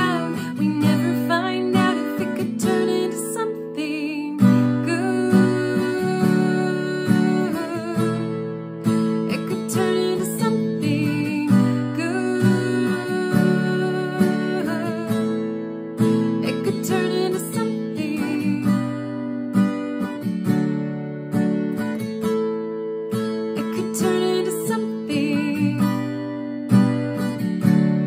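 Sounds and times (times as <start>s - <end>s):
woman singing with vibrato: 0.0s - 8.4s, 9.3s - 15.3s, 16.4s - 19.0s, 23.6s - 26.1s
strummed acoustic guitar: 0.0s - 28.0s.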